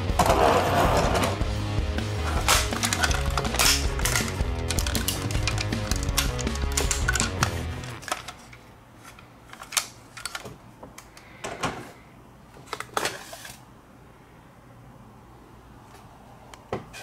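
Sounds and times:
plastic toy clicking and knocking: 2.4s - 8.6s, 9.5s - 10.6s.

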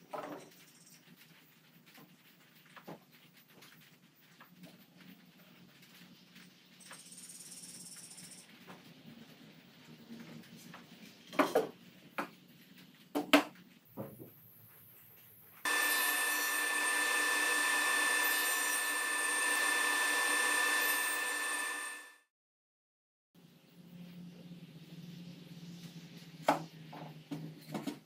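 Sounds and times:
table saw whining: 15.6s - 22.3s.

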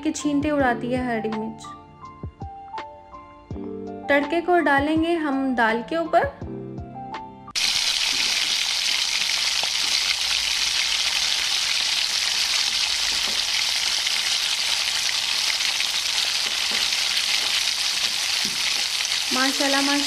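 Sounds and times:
hot oil sizzling: 7.6s - 20.0s.

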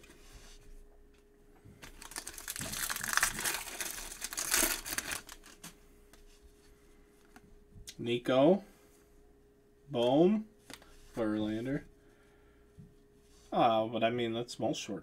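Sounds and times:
foil wrapper crinkling: 1.8s - 5.7s.

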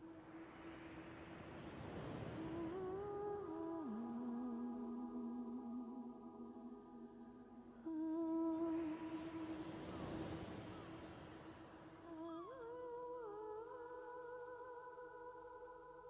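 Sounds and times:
soft hissing swell: 0.0s - 13.4s
ambient meditation music: 0.0s - 16.0s.

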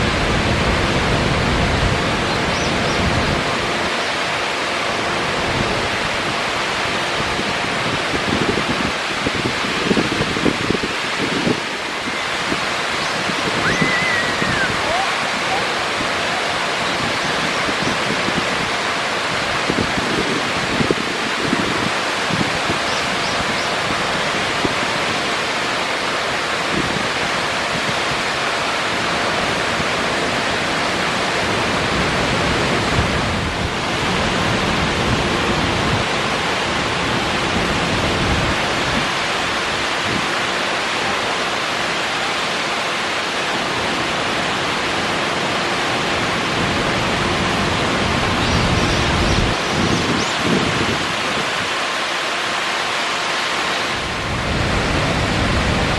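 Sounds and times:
waterfall rushing over boulders: 0.0s - 55.9s.

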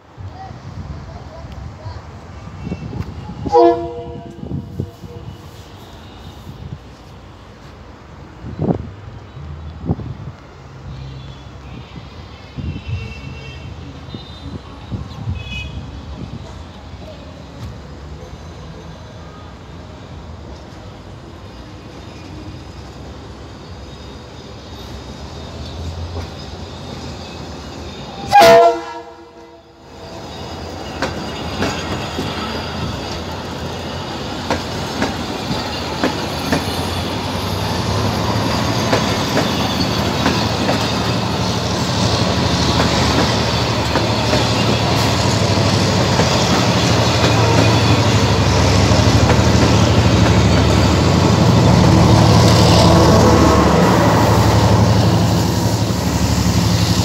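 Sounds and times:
train rumbling past: 0.0s - 57.0s
train horn blast: 2.7s - 6.6s, 28.2s - 29.8s, 52.0s - 55.0s
wheels clacking over rail joints: 30.6s - 52.2s.

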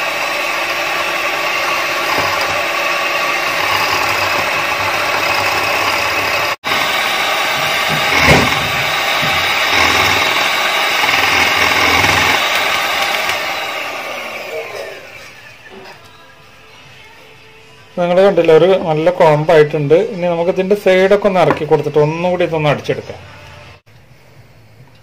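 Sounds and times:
electric hand mixer running: 0.0s - 15.7s.

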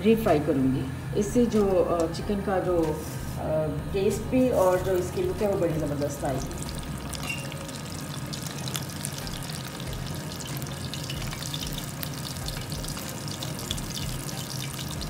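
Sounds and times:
chicken sizzling in hot oil: 4.4s - 15.0s.

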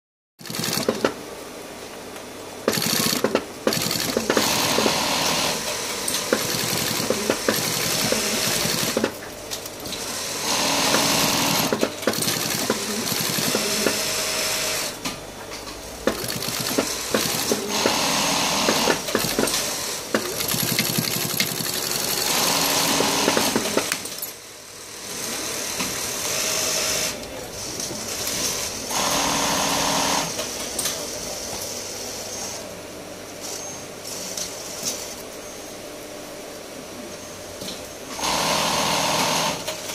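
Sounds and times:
sewing machine stitching: 0.4s - 1.2s, 2.7s - 9.2s, 9.9s - 15.0s, 16.0s - 24.0s, 38.1s - 39.9s.

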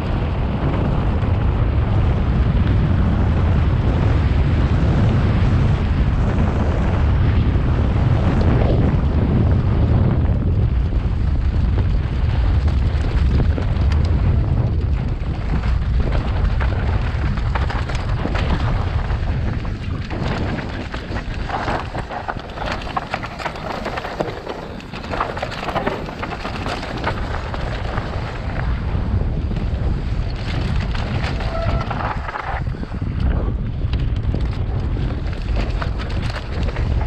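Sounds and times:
bike tyres on loose dirt: 0.0s - 37.0s
wind on microphone: 0.0s - 37.0s
bike parts and stones clattering: 14.8s - 28.7s, 30.3s - 33.3s.

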